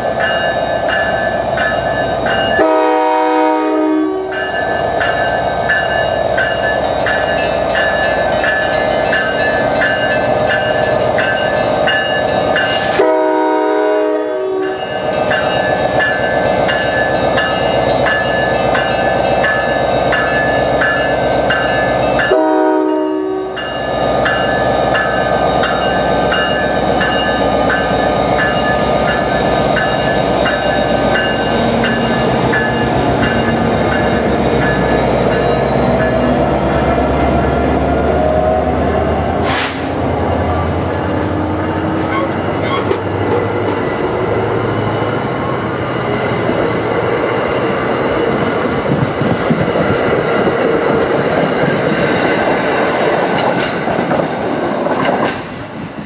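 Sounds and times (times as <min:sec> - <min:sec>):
crossing bell ringing: 0:00.0 - 0:13.4, 0:14.0 - 0:37.2
train rolling past: 0:00.0 - 0:56.0
train horn chord: 0:02.5 - 0:04.5, 0:13.0 - 0:14.8, 0:22.3 - 0:23.7.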